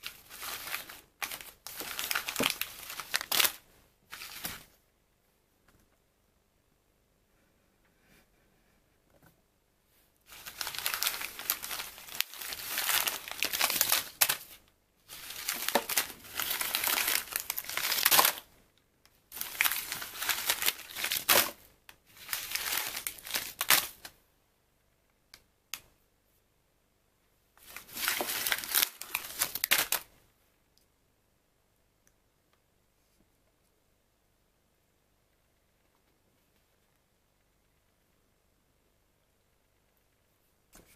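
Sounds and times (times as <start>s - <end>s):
tea bag sachets crinkling: 0.0s - 4.6s, 10.3s - 18.5s, 19.3s - 24.1s, 27.6s - 30.1s.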